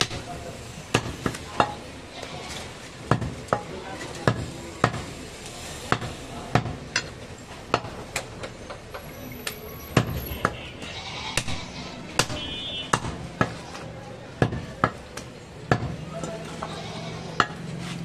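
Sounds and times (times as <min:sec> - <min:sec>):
knife chopping meat on wood block: 0:12.2 - 0:13.6.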